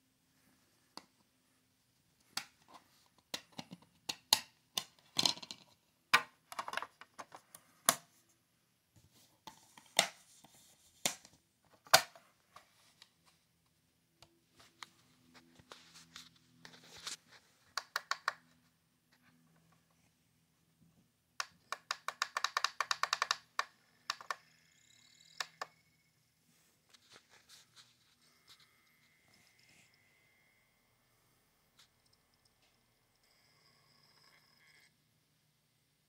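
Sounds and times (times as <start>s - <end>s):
faint hum: 27.6s - 35.9s.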